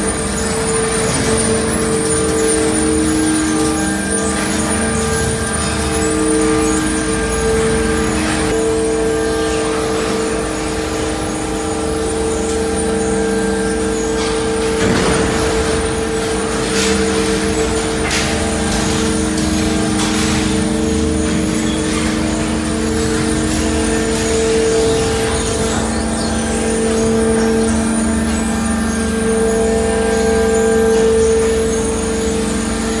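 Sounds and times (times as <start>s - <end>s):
machinery hum and rumble: 0.0s - 33.0s
knocks and clatters: 13.4s - 29.0s.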